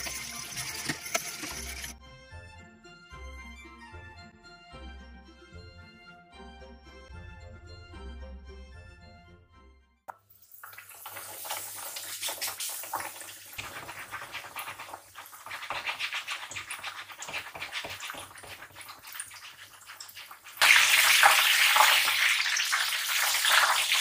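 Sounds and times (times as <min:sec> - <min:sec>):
cutlet sizzling in hot oil: 0:00.0 - 0:01.9, 0:10.2 - 0:24.0.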